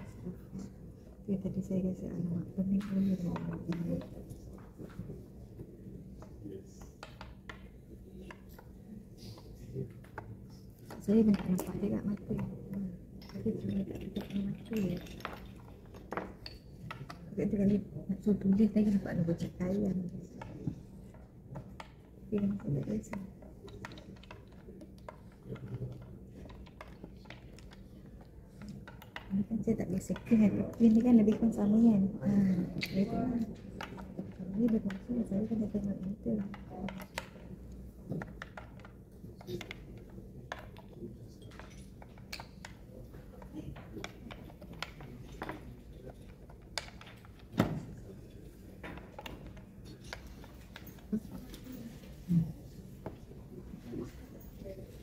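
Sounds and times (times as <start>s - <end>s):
chess pieces clicking on wood: 6.2s - 7.7s, 9.9s - 17.8s, 20.4s - 31.7s, 32.8s - 47.5s.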